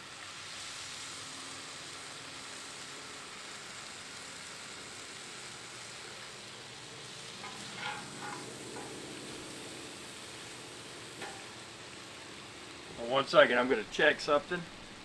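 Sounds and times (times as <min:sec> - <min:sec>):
steak sizzling on a griddle: 0:00.0 - 0:15.0.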